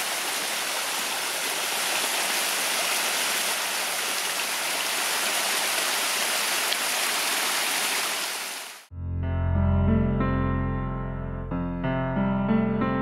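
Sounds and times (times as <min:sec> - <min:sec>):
water splashing onto stones: 0:00.0 - 0:08.9.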